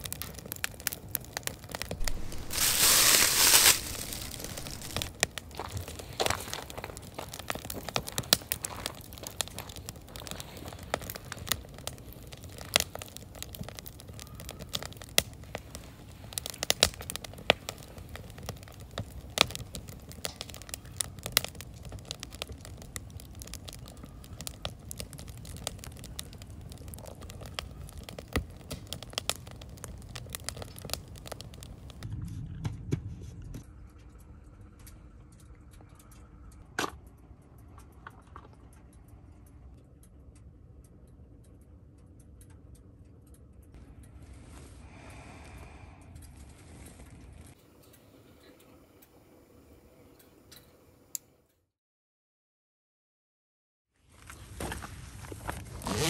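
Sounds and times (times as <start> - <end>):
wood fire crackling and popping: 0.0 - 32.1, 54.2 - 56.0.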